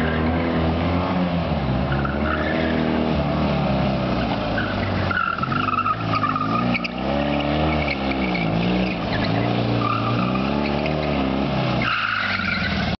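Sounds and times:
car engine revving: 0.0 - 13.0
tyres squealing: 4.2 - 12.9.

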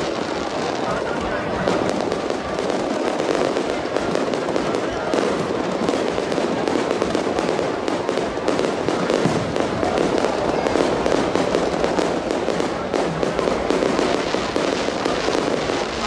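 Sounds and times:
fireworks crackling and popping: 0.0 - 16.0.

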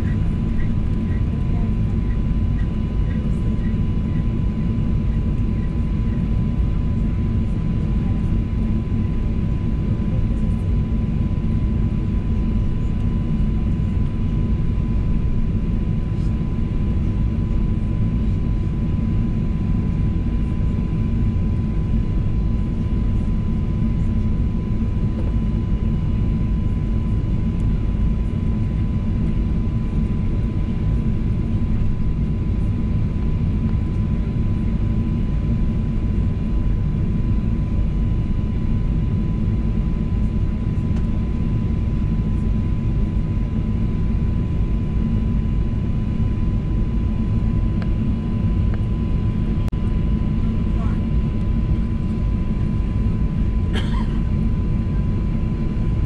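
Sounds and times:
jet engine rumble in cabin: 0.0 - 56.0.

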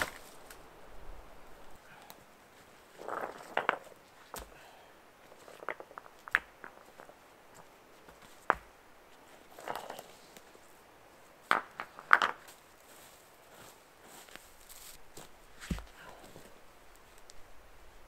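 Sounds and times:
stones knocking together: 3.0 - 4.6, 5.3 - 7.2, 11.5 - 12.5.

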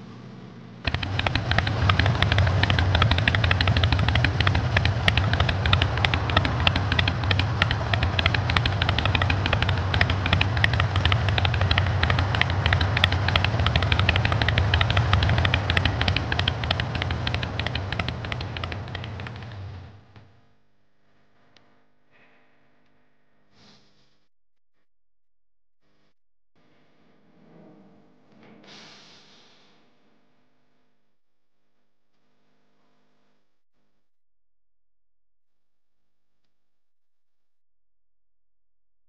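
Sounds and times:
motorcycle engine running: 0.0 - 20.2.

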